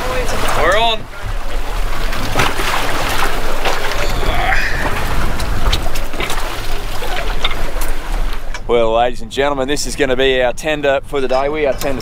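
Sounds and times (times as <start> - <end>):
boat engine idling: 0.0 - 12.0
wind on microphone: 3.5 - 8.3.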